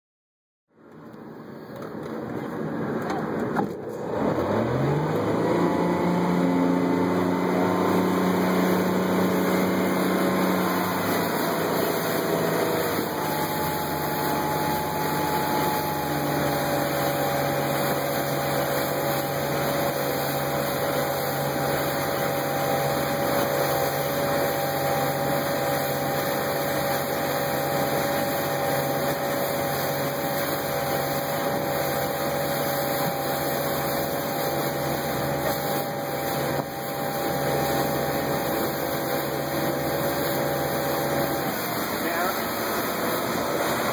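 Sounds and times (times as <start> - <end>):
wind: 0.7 - 43.9
boat engine throttling up: 1.5 - 43.9
rushing water: 4.2 - 43.9.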